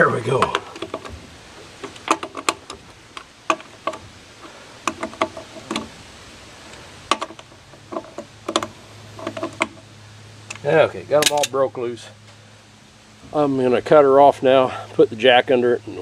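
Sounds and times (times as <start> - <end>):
light metal clinks: 11.2 - 11.6.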